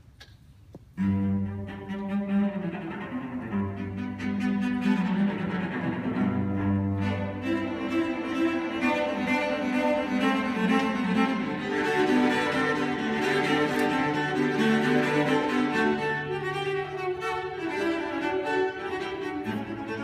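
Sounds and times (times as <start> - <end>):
cello duet: 0.8 - 20.0.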